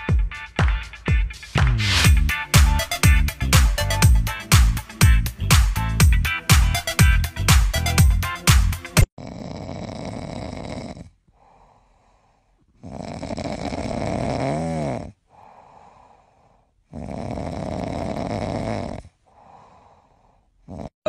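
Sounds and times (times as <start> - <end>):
puppy snoring: 9.2 - 11.4, 12.7 - 15.2, 16.8 - 19.2, 20.6 - 21.0
quiet breath: 11.3 - 12.8, 15.2 - 16.9, 19.0 - 20.7.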